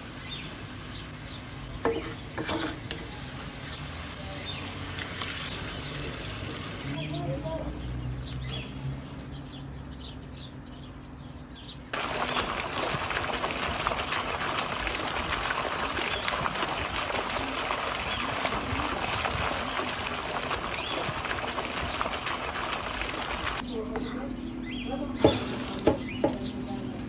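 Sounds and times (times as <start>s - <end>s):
water splashing in a pond: 3.7s - 7.0s, 11.9s - 23.6s.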